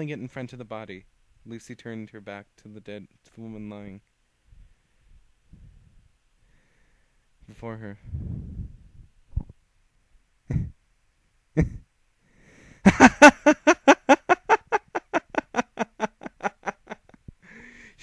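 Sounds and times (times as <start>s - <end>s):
person laughing hysterically: 10.5s - 10.8s, 11.6s - 11.9s, 12.8s - 17.3s.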